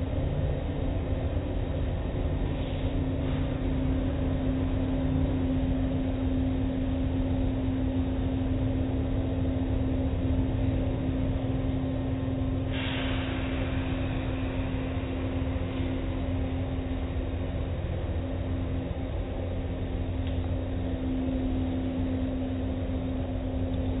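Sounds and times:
car wash machine rumble: 9.6s - 24.0s
water hiss: 12.7s - 14.5s.

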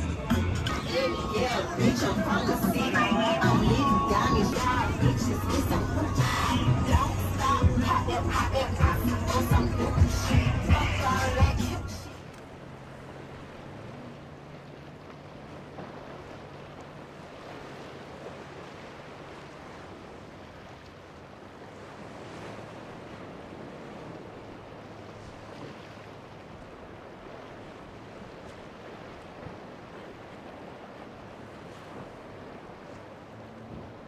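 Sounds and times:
wind on microphone: 0.0s - 12.1s
outboard engines humming: 0.0s - 34.0s
waves breaking: 0.0s - 34.0s.

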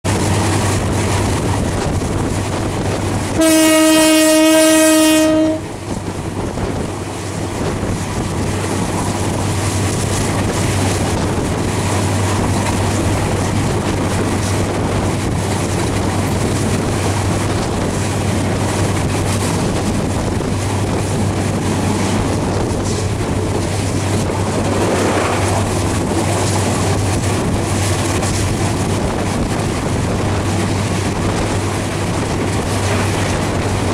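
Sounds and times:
train wheels rumbling on rails: 0.0s - 33.9s
locomotive horn blast: 3.4s - 5.9s.

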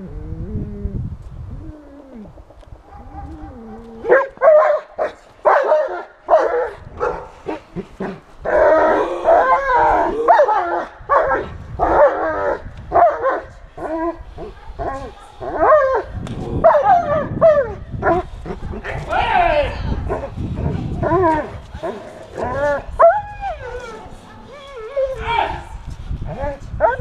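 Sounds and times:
dog barking loudly: 4.0s - 7.3s, 12.9s - 13.5s, 16.6s - 18.2s.

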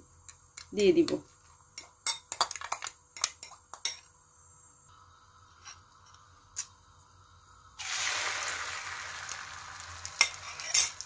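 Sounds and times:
egg sizzling in hot oil: 4.9s - 11.0s.

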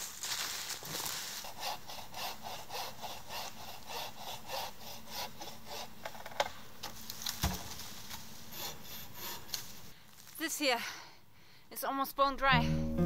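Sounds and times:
hand saw cutting wood: 0.9s - 6.2s, 8.5s - 9.7s.

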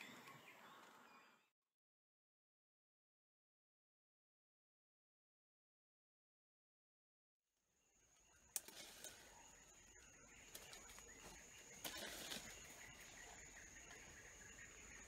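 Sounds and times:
twigs snapping and leaves rustling: 8.5s - 14.2s.

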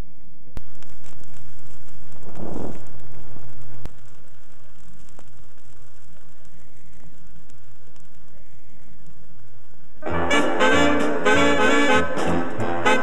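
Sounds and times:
low hum: 0.0s - 10.3s
vinyl surface crackle and hiss: 0.0s - 11.2s.

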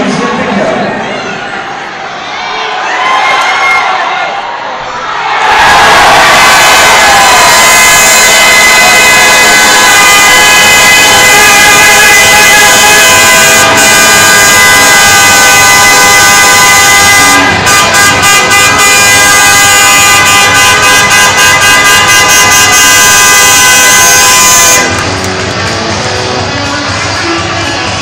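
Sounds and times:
crowd noise: 0.0s - 28.0s
goal horn: 7.3s - 25.1s.

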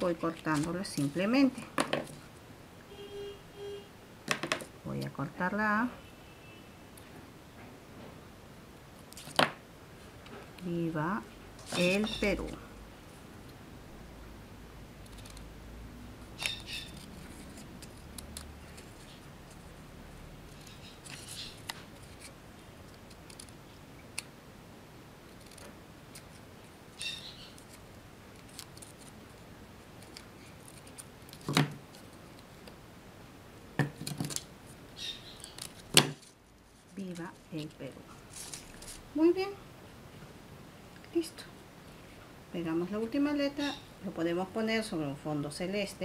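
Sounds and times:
scissors snipping paper: 27.0s - 29.2s.

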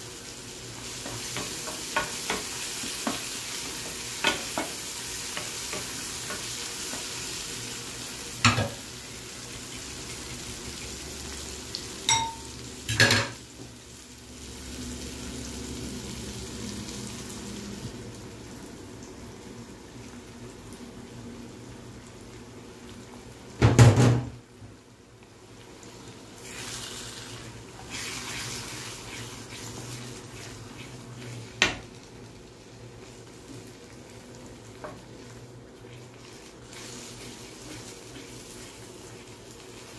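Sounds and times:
food sizzling in a frying pan: 0.0s - 39.9s
wooden spatula scraping a pan: 26.4s - 31.8s.

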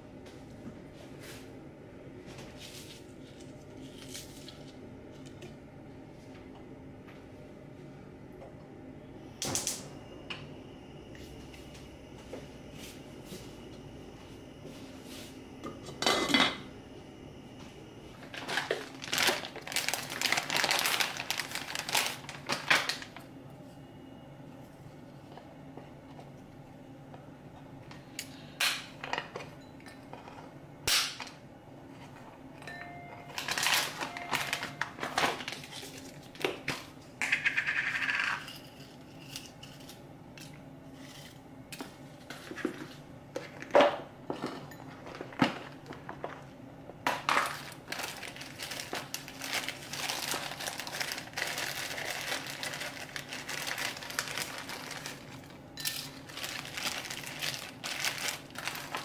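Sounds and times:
plastic bag crinkling: 18.2s - 23.2s, 33.3s - 36.4s, 47.3s - 59.0s.

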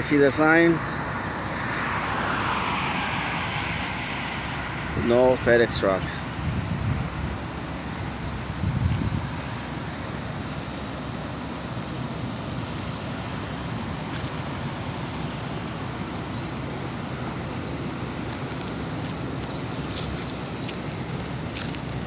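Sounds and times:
road noise: 0.0s - 22.0s
truck engine rumble: 0.0s - 22.0s
wind noise: 5.8s - 14.9s.

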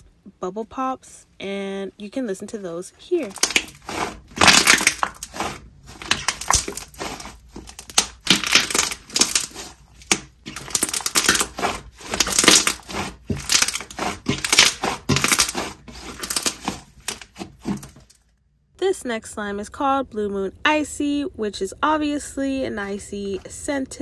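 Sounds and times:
slime bubbles popping: 3.2s - 17.9s.

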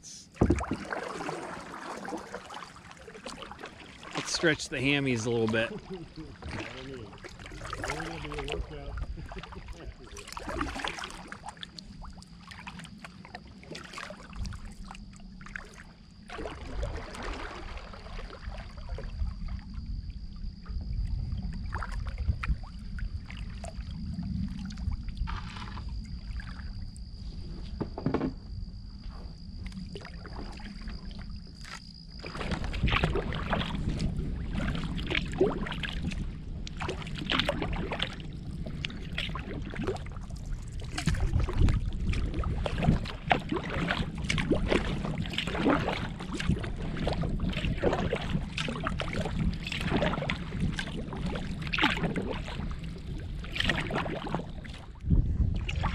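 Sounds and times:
kayak paddle splashes: 0.1s - 55.9s
wind buffeting microphone: 4.3s - 10.8s, 32.0s - 55.9s.

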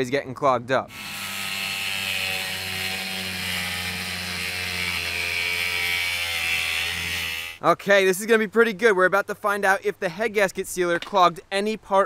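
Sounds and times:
angle grinder cutting metal: 0.9s - 7.6s.

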